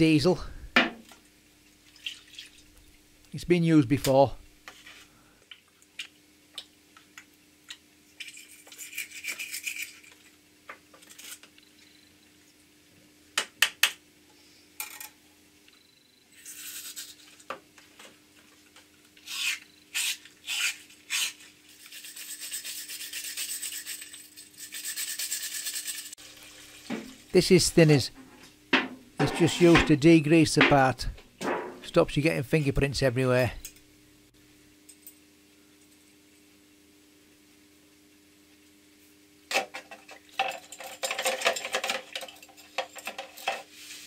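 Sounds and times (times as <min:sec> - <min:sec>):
wire brush scrubbing metal: 0:19.3 - 0:26.2, 0:29.2 - 0:30.0.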